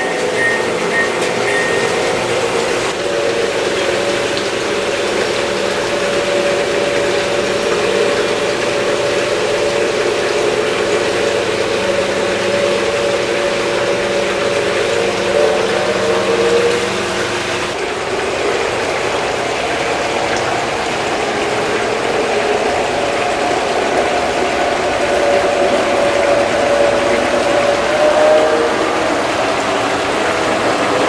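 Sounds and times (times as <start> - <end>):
model train rolling on track: 0.0 - 19.8
model locomotive engine drone: 0.0 - 31.0.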